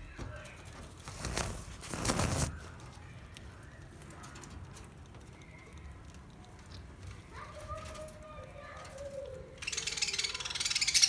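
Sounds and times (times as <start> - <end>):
budgerigars chirping and warbling: 9.5 - 11.0.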